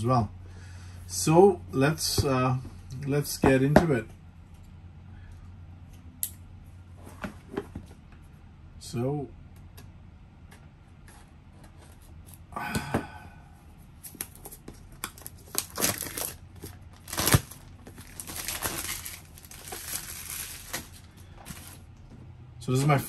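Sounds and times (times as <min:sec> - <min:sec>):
packaging rustling: 0:14.0 - 0:21.9
plastic wrap crinkling and tearing: 0:14.1 - 0:21.9.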